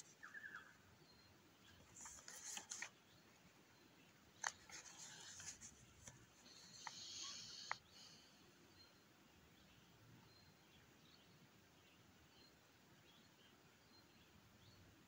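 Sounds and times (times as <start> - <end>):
faint rustling: 1.6 - 3.0, 4.4 - 7.8.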